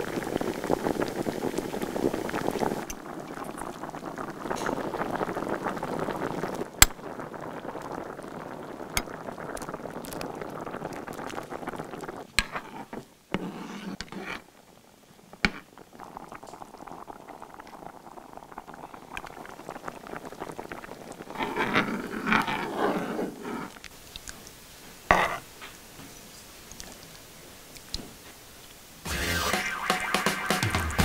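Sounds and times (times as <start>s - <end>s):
soup bubbling in a pot: 0.0s - 30.6s
soup being stirred: 11.2s - 14.6s.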